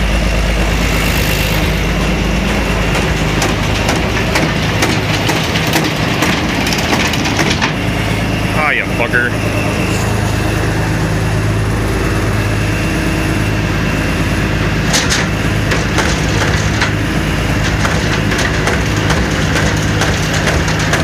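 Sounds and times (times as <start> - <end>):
diesel engine running: 0.0 - 21.0
sharp clicks and knocks: 2.9 - 7.8, 17.6 - 21.0.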